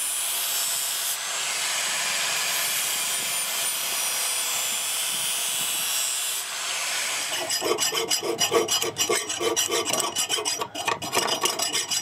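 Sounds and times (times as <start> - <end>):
angle grinder grinding steel: 7.0 - 12.0.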